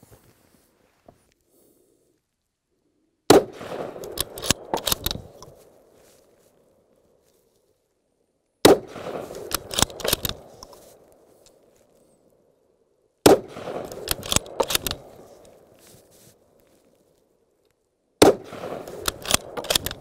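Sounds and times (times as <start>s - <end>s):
rifle shots: 3.3s - 5.5s, 8.6s - 10.7s, 13.2s - 15.5s, 18.2s - 20.0s
echoing cracks and rumble: 3.3s - 5.6s, 8.6s - 10.7s, 13.2s - 15.6s, 18.2s - 20.0s.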